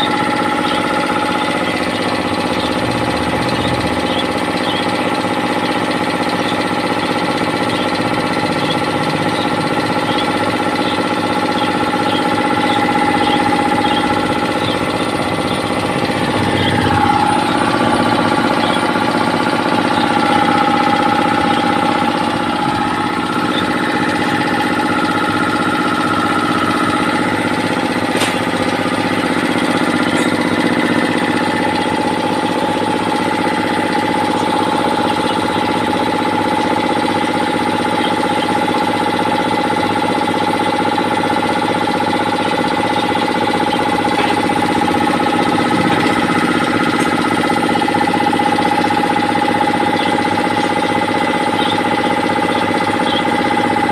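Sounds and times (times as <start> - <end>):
air compressor humming: 0.0 - 53.9
engine-like tone changing pitch: 0.0 - 53.9.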